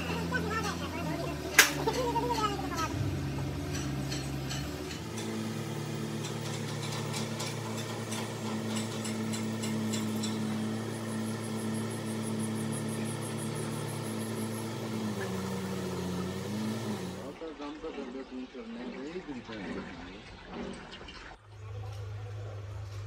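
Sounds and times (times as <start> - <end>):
engine idling: 0.0 - 17.3.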